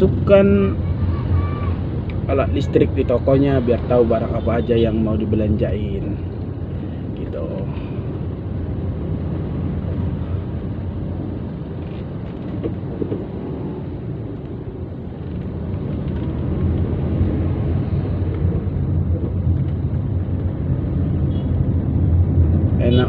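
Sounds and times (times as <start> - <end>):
car cabin rumble: 9.6 - 23.0.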